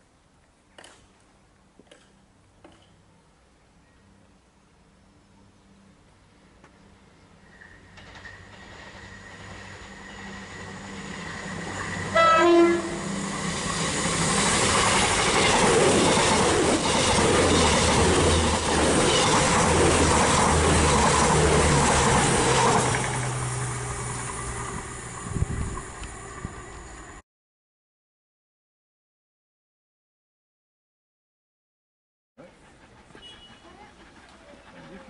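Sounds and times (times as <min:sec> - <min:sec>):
train rumble and wheel clatter: 0:06.6 - 0:27.2, 0:32.4 - 0:35.0
train horn: 0:12.0 - 0:13.2, 0:33.1 - 0:33.8.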